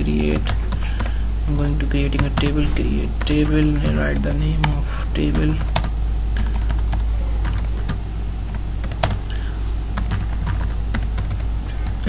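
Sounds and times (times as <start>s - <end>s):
steady low hum: 0.0s - 12.0s
keyboard keys clicking: 3.2s - 9.3s, 10.0s - 12.0s.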